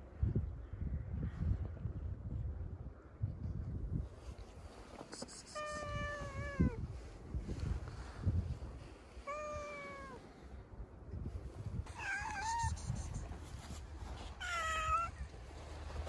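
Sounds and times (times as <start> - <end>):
cats meowing: 5.5 - 6.8, 9.2 - 10.2, 11.9 - 13.2, 14.4 - 15.3.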